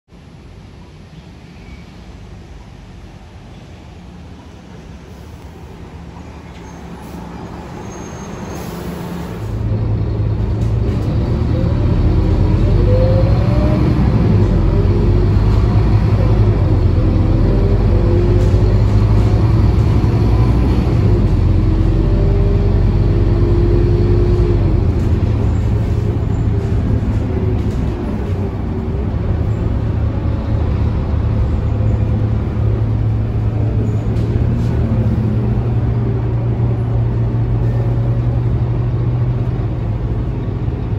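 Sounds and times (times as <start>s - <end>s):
bus diesel engine: 0.1s - 40.9s
rising engine whine: 9.2s - 40.9s.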